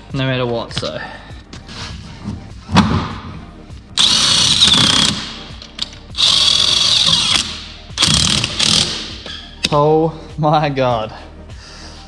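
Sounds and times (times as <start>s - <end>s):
cordless drill whining: 4.0s - 5.2s, 6.2s - 9.0s.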